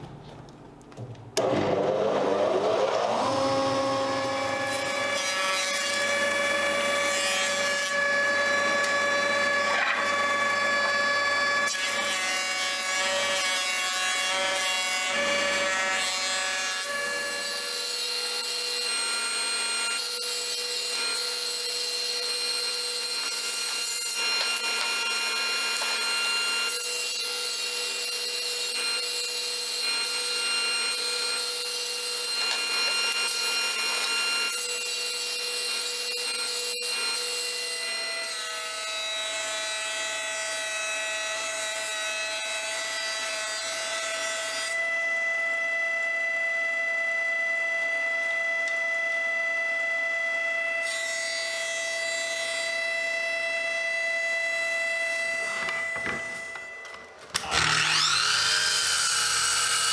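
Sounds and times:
jointer-planer motor whine: 1.4s - 12.0s, 44.8s - 50.9s, 52.7s - 59.9s
table saw running: 1.4s - 59.9s.

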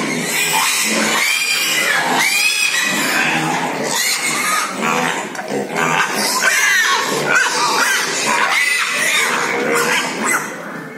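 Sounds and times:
pigs squealing and grunting: 0.0s - 10.9s.

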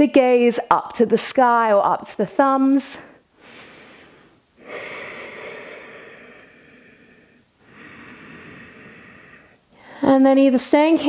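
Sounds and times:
woman breathing slowly: 3.0s - 10.2s.

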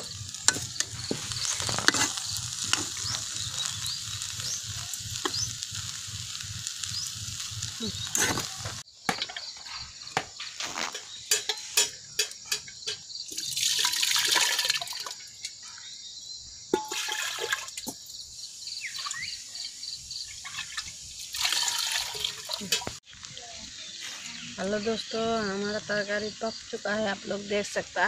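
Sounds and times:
metal cookware clinking: 10.8s - 14.1s, 16.8s - 17.5s, 22.1s - 23.0s
food poured into water: 13.3s - 15.3s, 16.8s - 17.9s, 20.4s - 23.0s.

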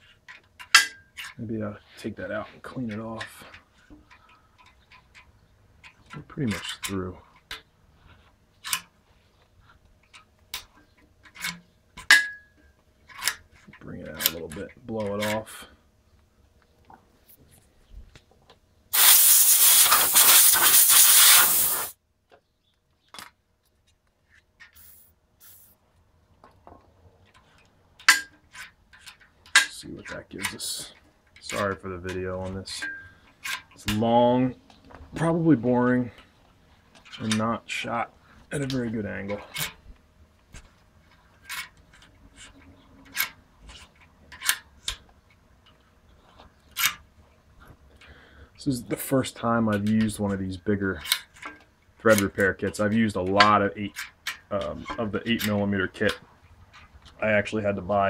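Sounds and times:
compressed air blow gun blasting: 18.9s - 22.0s.

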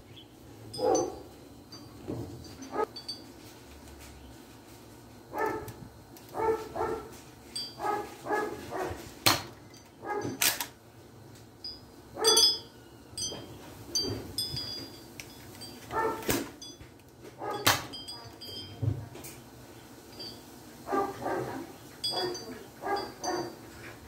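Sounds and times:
dog barking: 0.8s - 1.3s, 5.3s - 5.8s, 6.4s - 7.1s, 7.8s - 9.0s, 10.0s - 10.4s, 15.9s - 16.3s, 20.9s - 23.6s.

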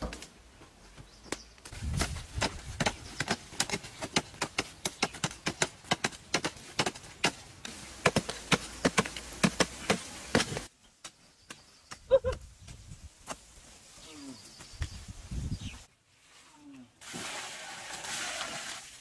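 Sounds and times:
digging sticks striking stony ground: 1.3s - 12.5s.

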